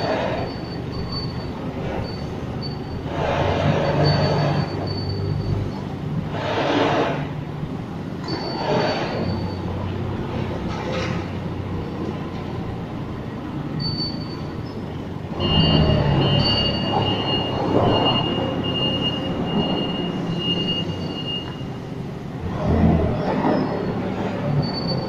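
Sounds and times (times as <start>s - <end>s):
high-pitched squeal: 0.0s - 7.3s, 8.2s - 9.8s, 13.8s - 21.8s, 23.1s - 25.0s
forklift engine running: 0.0s - 25.0s.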